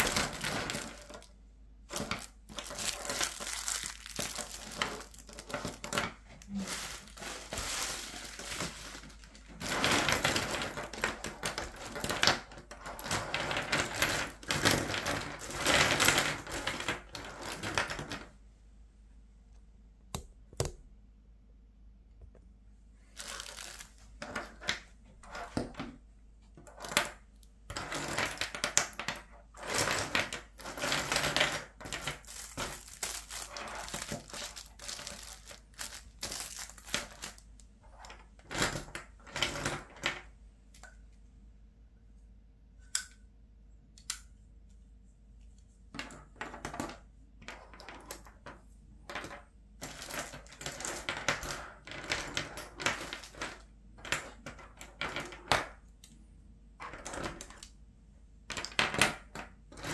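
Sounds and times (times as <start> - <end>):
plastic pens clicking and clattering: 0.0 - 1.3, 1.9 - 18.3, 23.2 - 25.8, 26.6 - 40.9, 49.1 - 56.2, 56.8 - 57.8, 58.5 - 59.9
plastic wrappers rustling: 0.0 - 1.3, 1.9 - 12.4, 23.0 - 24.1, 30.7 - 37.4.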